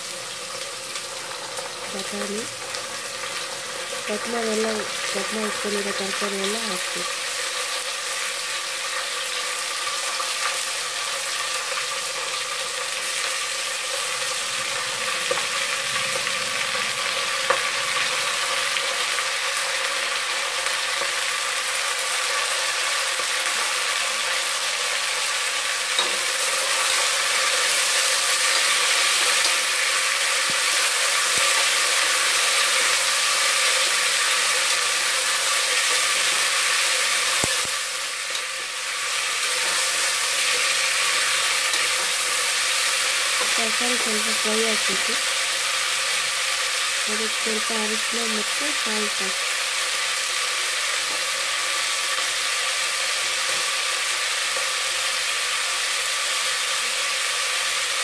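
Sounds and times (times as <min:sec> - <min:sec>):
vegetables sizzling in hot oil: 0:00.0 - 0:58.0.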